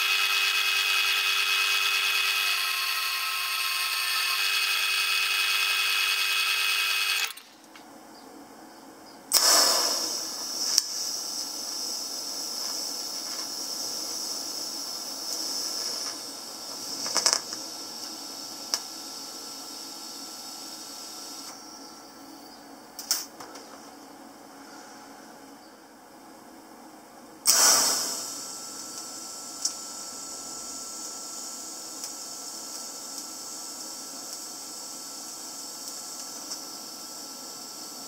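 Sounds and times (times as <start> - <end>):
bandsaw cutting steel: 0.0 - 7.4
welding arc hissing: 9.3 - 21.5, 27.5 - 38.0.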